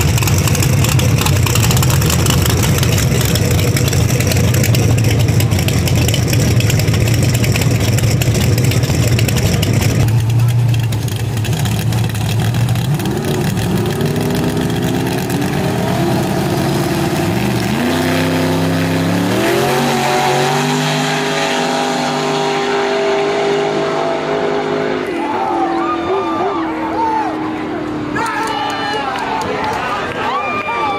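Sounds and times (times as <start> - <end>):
drag-race engines revving: 0.0 - 30.9.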